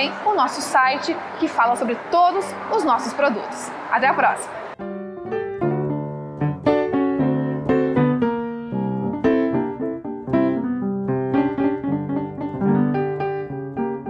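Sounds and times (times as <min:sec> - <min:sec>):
piano notes and chords: 0:04.5 - 0:14.0.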